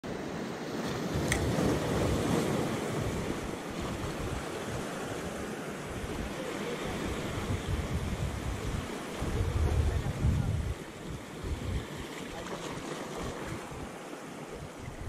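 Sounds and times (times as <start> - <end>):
waves breaking over rocks: 0.1 - 15.0
wind buffeting microphone: 1.0 - 15.0.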